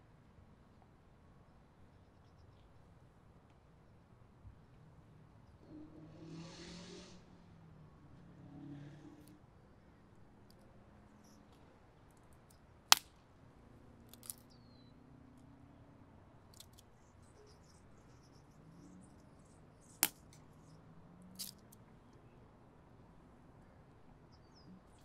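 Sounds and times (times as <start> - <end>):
stick fire crackling: 12.9 - 13.1, 14.1 - 14.4
sharp pops from fire: 12.9 - 13.2.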